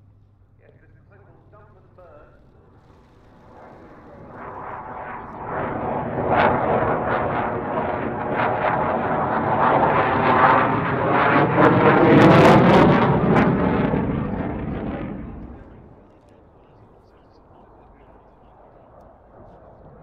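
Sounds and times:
loud jet noise: 0.8 - 20.0
sharp jet crackles: 2.8 - 6.5.

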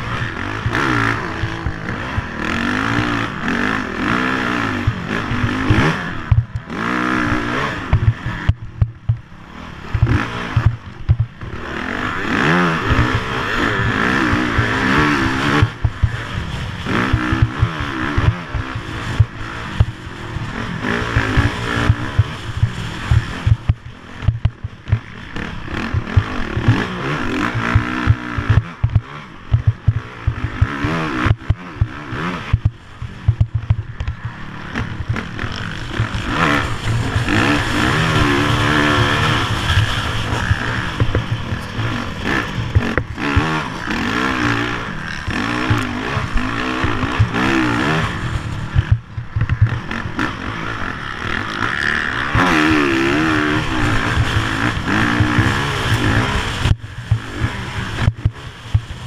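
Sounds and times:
racing engine revving hard: 11.6 - 23.6, 34.6 - 49.0, 49.7 - 58.6.

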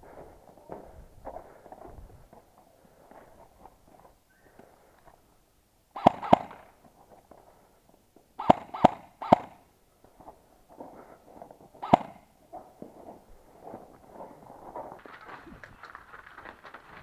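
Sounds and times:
airsoft rifle single shots: 6.0 - 6.7, 8.4 - 9.6, 11.8 - 12.3.

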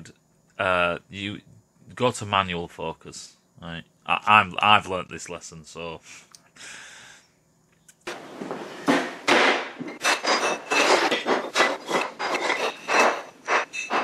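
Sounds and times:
steel tubes clanking on table: 8.9 - 14.0.

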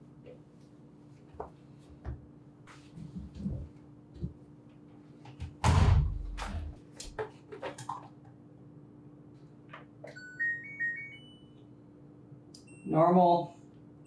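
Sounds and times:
washer door thudding shut: 5.6 - 6.7.

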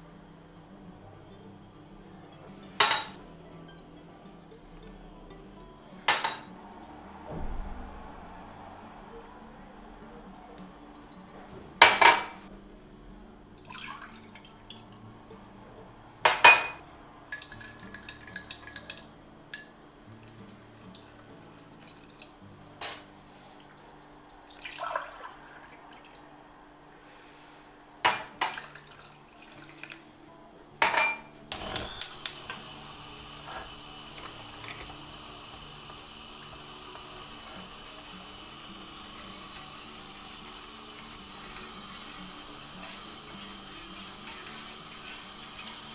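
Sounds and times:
glass and utensils knocking on pot: 6.1 - 6.5, 16.3 - 19.8, 30.8 - 32.4
water pouring from jug: 13.6 - 15.0, 24.4 - 26.2, 28.5 - 30.0
glassy ringing: 16.3 - 19.8, 22.8 - 23.1
steady hiss: 31.4 - 45.9.

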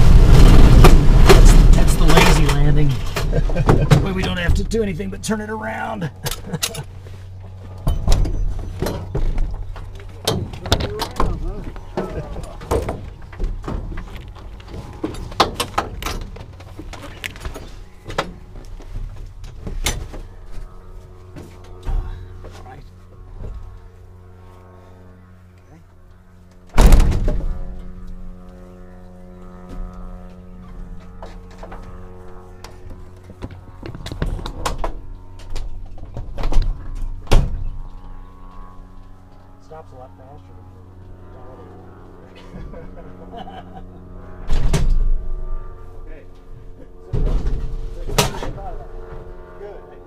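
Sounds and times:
dull low rumble: 0.0 - 50.0
steady low hum: 0.0 - 50.0
knocks and thuds in cockpit: 0.6 - 4.8, 7.8 - 20.3, 26.7 - 28.0.

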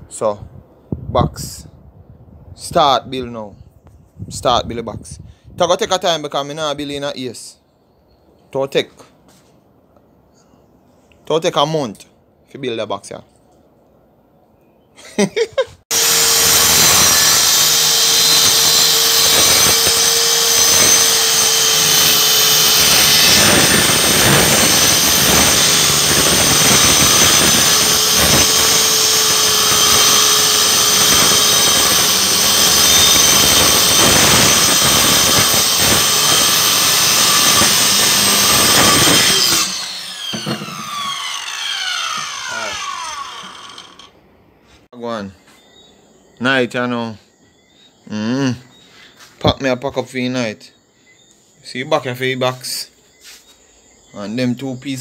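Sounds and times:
circular saw cutting plywood: 15.9 - 44.2.

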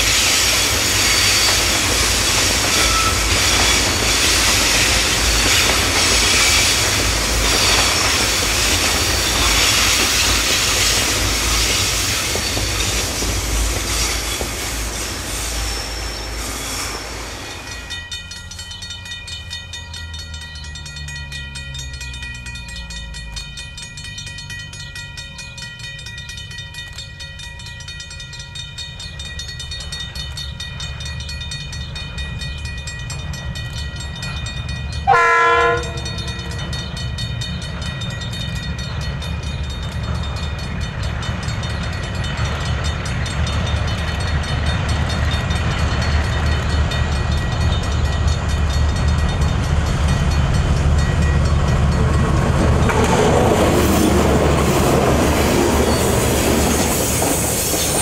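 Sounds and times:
locomotive engine rumble: 0.0 - 58.0
train wheels clacking over rails: 0.0 - 58.0
locomotive horn blast: 35.1 - 36.2.

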